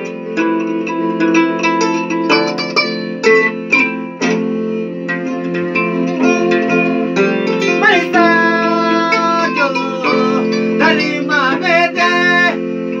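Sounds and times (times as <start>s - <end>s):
kora plucked: 0.0s - 12.6s
held keyboard chord: 0.0s - 13.0s
man singing: 7.7s - 13.0s.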